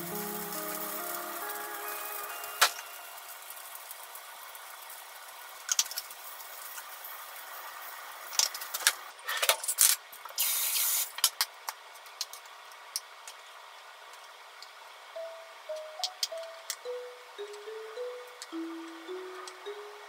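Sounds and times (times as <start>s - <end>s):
patties sizzling in a frying pan: 0.0s - 9.1s, 10.3s - 11.3s
loud hissing spurt: 10.4s - 11.1s.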